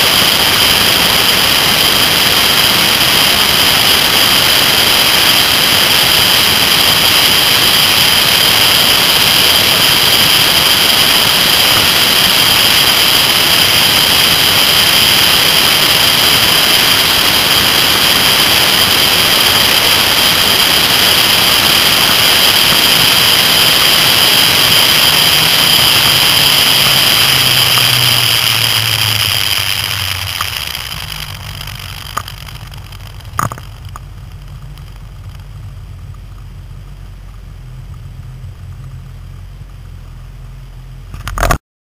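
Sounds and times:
motorcycle engine running: 0:00.0 - 0:41.6
wind and road noise: 0:00.0 - 0:41.6
sharp clicks: 0:28.8 - 0:35.5.

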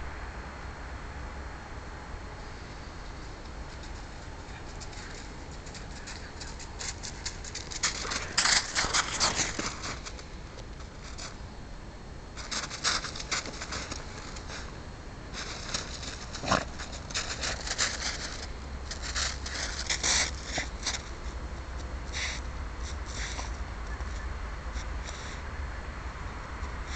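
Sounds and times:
dog digging in snow: 0:04.0 - 0:10.2, 0:12.4 - 0:14.7, 0:15.3 - 0:21.1.

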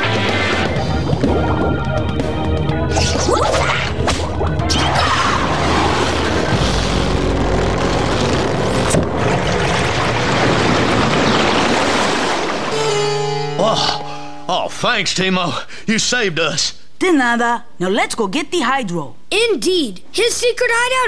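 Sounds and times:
background music: 0:00.0 - 0:10.1, 0:12.7 - 0:15.1
cartoon water rushing: 0:02.9 - 0:14.1.

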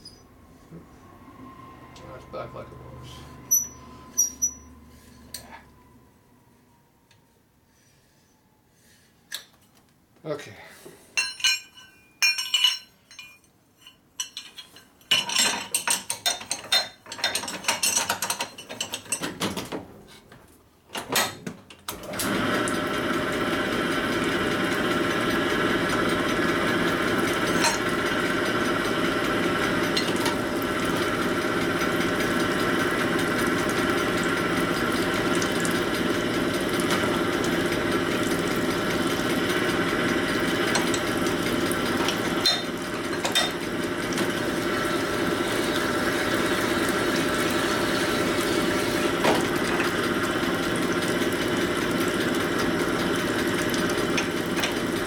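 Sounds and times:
metal clinks and rattles: 0:11.2 - 0:19.2
honing machine running: 0:22.1 - 0:55.0.

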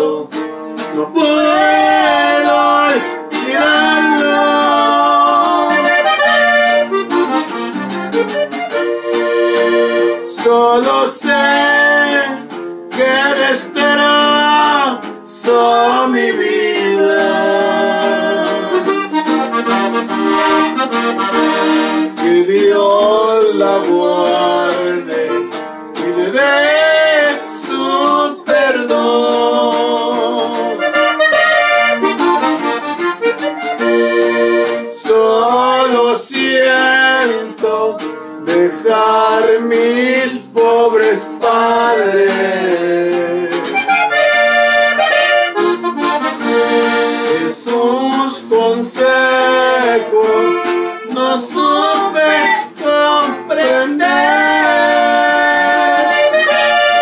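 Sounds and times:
button accordion melody: 0:00.0 - 0:57.0
guitar strumming: 0:00.0 - 0:57.0.

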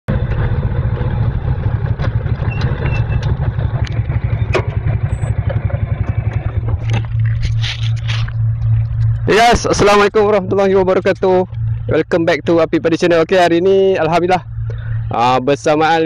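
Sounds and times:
harvester engine running: 0:00.1 - 0:16.0.

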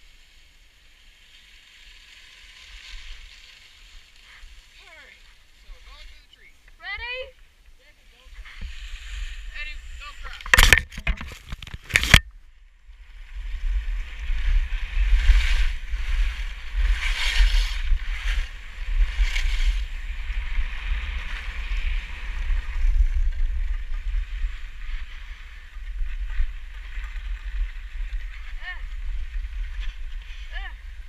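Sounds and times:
skis scraping over snow: 0:00.0 - 0:06.6, 0:07.8 - 0:10.6, 0:13.3 - 0:31.0
wind rumble on microphone: 0:08.2 - 0:31.0.

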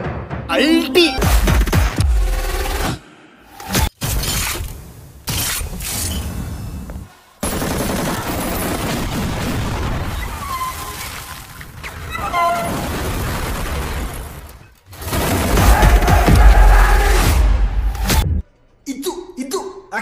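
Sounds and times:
film music: 0:00.0 - 0:03.8, 0:15.0 - 0:18.6.

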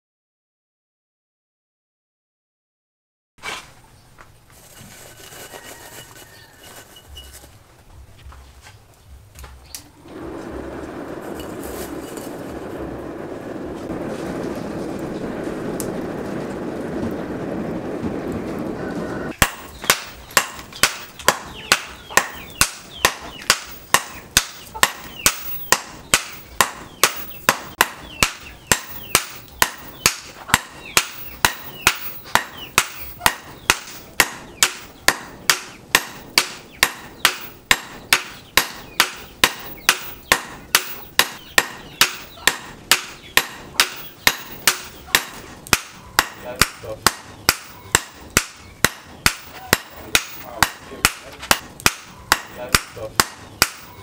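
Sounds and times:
forge fire rushing: 0:09.9 - 0:37.2
hammer ringing on anvil: 0:36.8 - 0:54.0.

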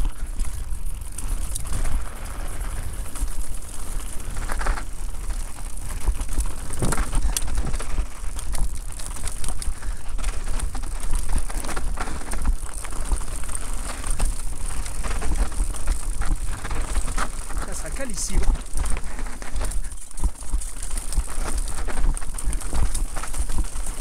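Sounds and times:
bike rattling over stones: 0:00.0 - 0:24.0
wind on microphone: 0:06.6 - 0:08.1.

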